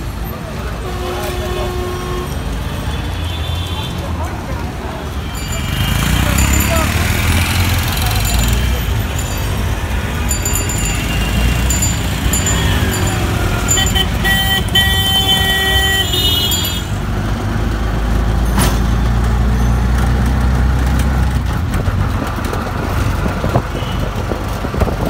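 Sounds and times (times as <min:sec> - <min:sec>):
auto-rickshaw engine rumble: 0:00.0 - 0:25.0
street traffic: 0:00.0 - 0:25.0
vehicle horns honking: 0:00.8 - 0:04.0, 0:10.5 - 0:17.0, 0:23.8 - 0:24.2.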